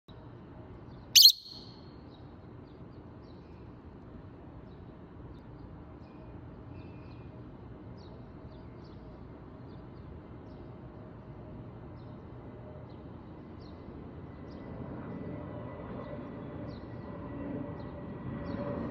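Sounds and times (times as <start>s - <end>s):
faint wild bird chirps: 1.0s - 1.8s
lovebird screech: 1.2s - 1.6s.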